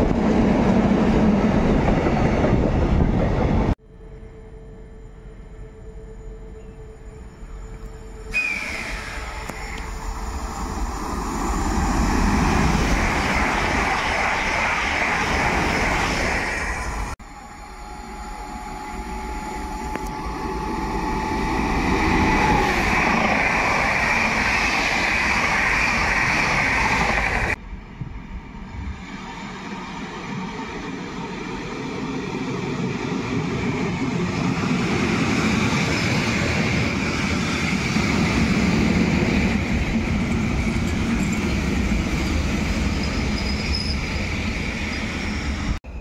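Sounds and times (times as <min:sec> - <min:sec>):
train approaching: 0:00.0 - 0:46.0
trains rushing through station: 0:00.0 - 0:46.0.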